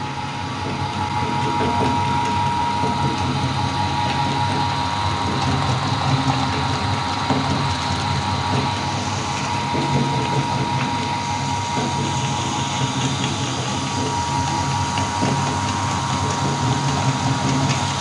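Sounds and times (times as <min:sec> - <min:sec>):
electric meat grinder running: 0:00.0 - 0:18.0.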